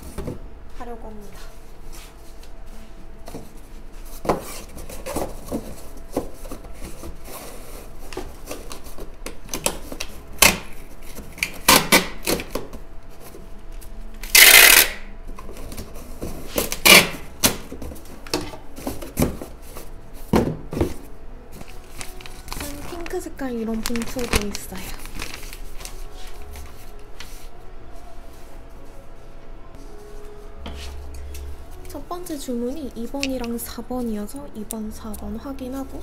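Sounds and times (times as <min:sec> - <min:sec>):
cardboard box folding and knocking: 0:03.2 - 0:12.8, 0:15.4 - 0:21.1
packing tape ripping from dispenser: 0:07.4 - 0:12.7, 0:14.2 - 0:15.1, 0:16.5 - 0:17.7, 0:21.6 - 0:26.6.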